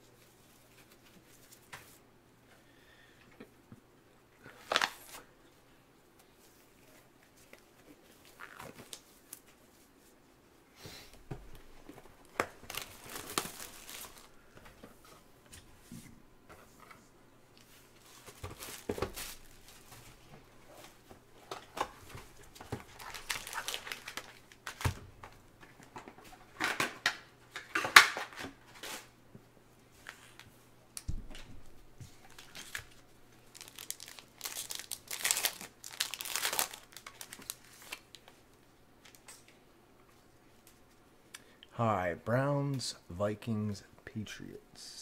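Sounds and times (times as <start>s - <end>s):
packaging crinkling and tearing: 4.6s - 5.2s, 12.2s - 14.4s, 21.4s - 25.4s, 32.2s - 38.3s.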